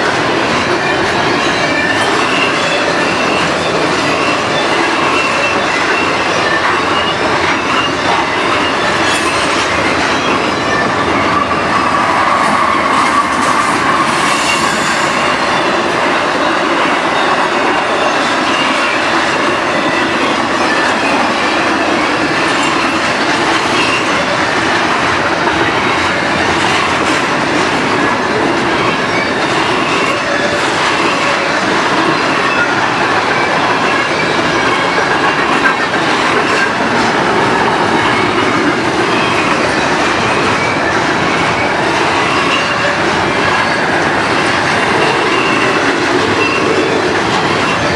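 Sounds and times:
train wheels rolling on rail: 0.0s - 47.9s
high-pitched wheel squeal: 1.2s - 24.5s, 37.7s - 47.9s.

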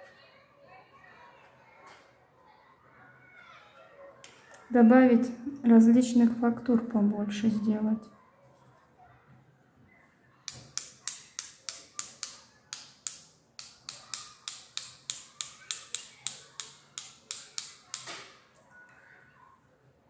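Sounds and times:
paintbrush tapping against brush: 10.5s - 18.2s.

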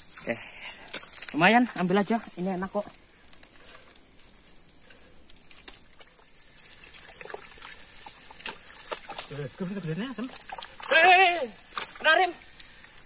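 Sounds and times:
hands splashing in muddy water: 5.9s - 12.0s.

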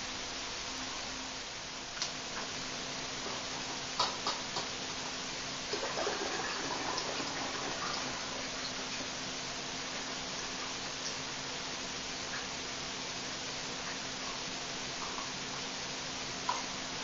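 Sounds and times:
steady hiss: 0.0s - 17.0s
fizzy liquid sounds: 5.7s - 9.3s.

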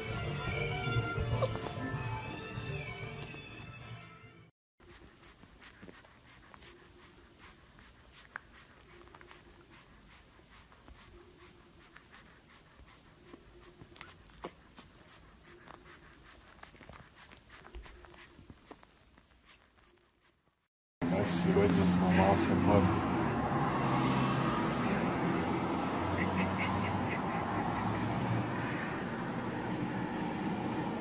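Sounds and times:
puppy sucking and chewing: 4.8s - 20.6s.

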